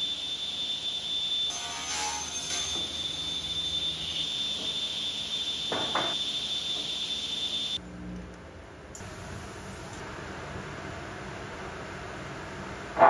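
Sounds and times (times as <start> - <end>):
table saw whining: 0.0 - 7.8.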